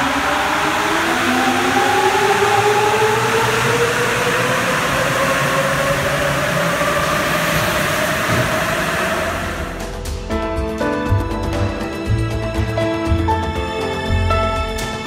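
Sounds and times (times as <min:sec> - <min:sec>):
subway train motor whine: 0:00.0 - 0:10.2
train rumble: 0:00.0 - 0:10.8.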